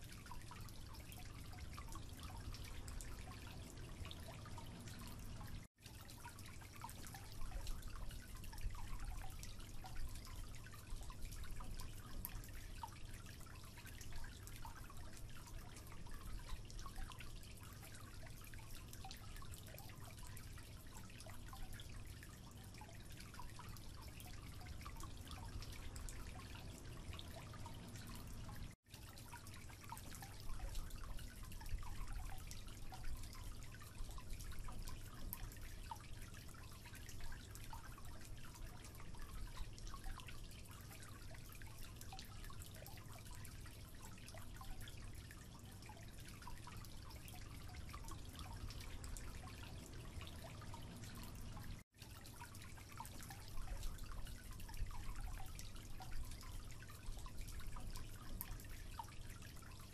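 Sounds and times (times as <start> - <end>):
water dripping into sink: 0.0 - 59.9
low steady rumble: 1.3 - 5.7, 23.3 - 28.8, 46.5 - 51.8.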